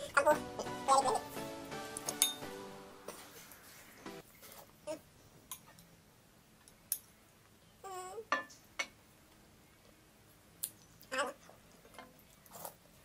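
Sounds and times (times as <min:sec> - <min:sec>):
spoon clinking against bowl: 0:02.1 - 0:02.5.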